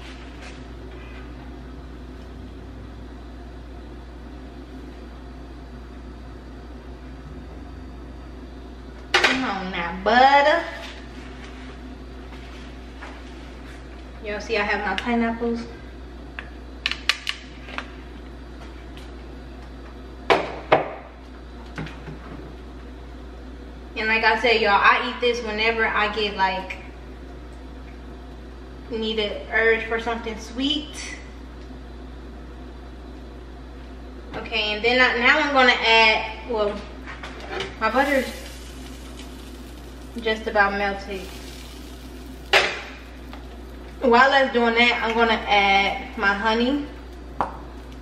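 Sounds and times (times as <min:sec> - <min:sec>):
low hum: 0:00.0 - 0:16.7, 0:35.2 - 0:48.0.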